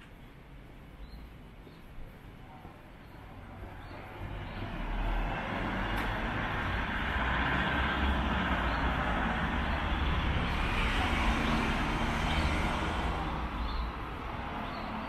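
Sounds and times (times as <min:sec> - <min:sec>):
vehicle passing by: 0:03.4 - 0:15.0.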